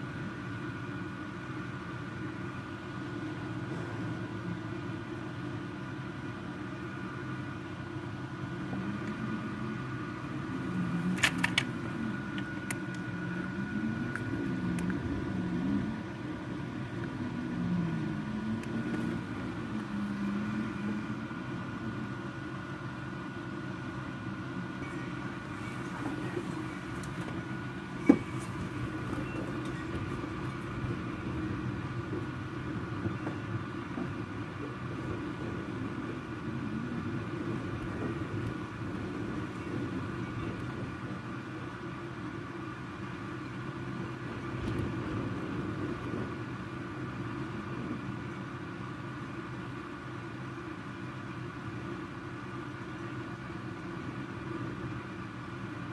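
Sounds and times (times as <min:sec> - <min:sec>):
sharp clicks: 0:11.1 - 0:13.0.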